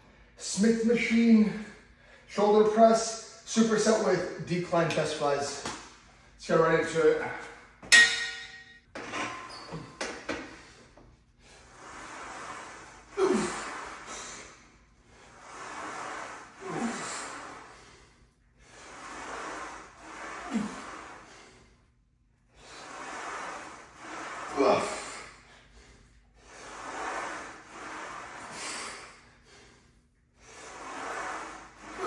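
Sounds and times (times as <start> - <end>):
man breathing heavily: 10.3 - 32.0
man grunting: 13.2 - 13.7.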